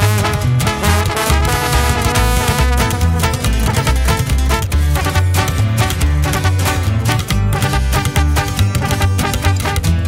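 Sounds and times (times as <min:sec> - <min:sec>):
background music with bass line: 0:00.0 - 0:10.0.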